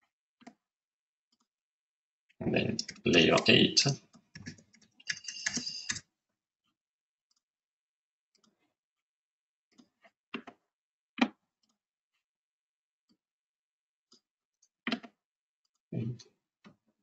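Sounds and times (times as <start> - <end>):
keyboard typing: 2.6 - 3.6, 4.4 - 6.0
mouse clicks: 4.4 - 6.0.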